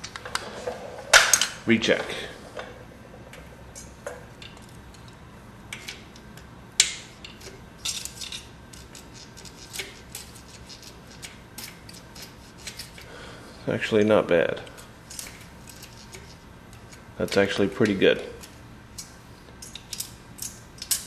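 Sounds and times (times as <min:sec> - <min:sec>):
metallic clicks and scrapes: 0:03.4 - 0:13.1, 0:14.7 - 0:21.0.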